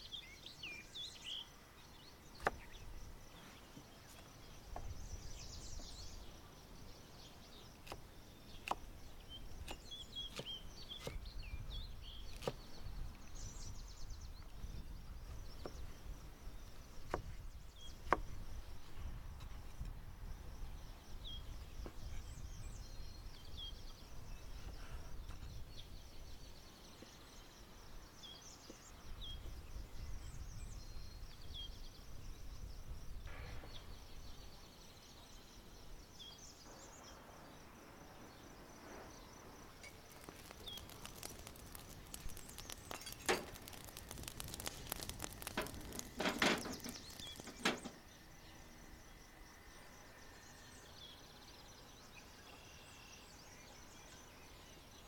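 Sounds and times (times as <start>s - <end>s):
small birds chirping: 0.0s - 18.5s, 38.2s - 55.0s
sharp clicks and knocks: 39.9s - 48.0s.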